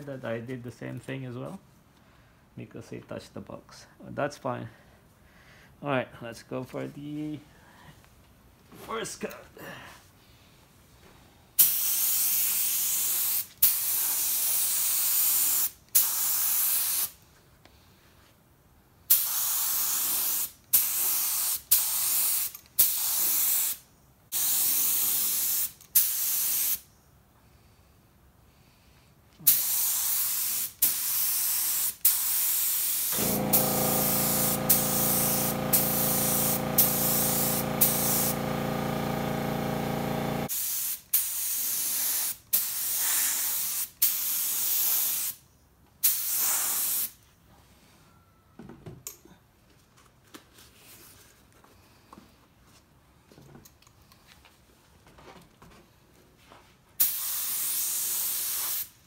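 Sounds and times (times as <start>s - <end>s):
spray gun spraying bursts: 11.6s - 17.1s, 19.1s - 26.8s, 29.5s - 45.4s, 46.0s - 47.1s, 57.0s - 58.9s
air compressor motor humming: 33.1s - 40.5s.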